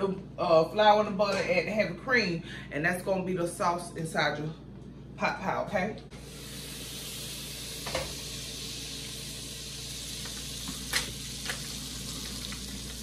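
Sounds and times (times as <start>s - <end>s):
butter sizzling in a pot: 6.2s - 13.0s.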